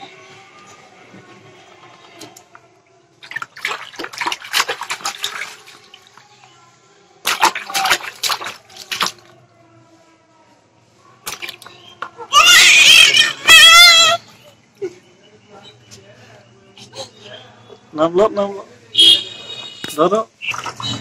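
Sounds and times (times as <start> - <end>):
baby splashing water: 3.2 - 6.2, 7.2 - 9.4, 11.2 - 14.2, 20.4 - 21.0.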